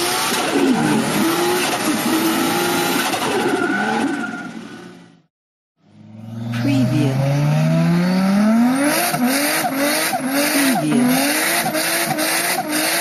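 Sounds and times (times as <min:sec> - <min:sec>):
racing car engine revving: 0:05.8 - 0:13.0.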